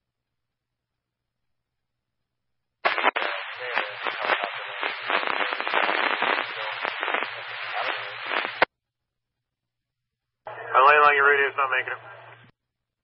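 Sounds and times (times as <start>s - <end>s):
crackling radio static: 2.8s - 8.7s, 10.5s - 12.5s.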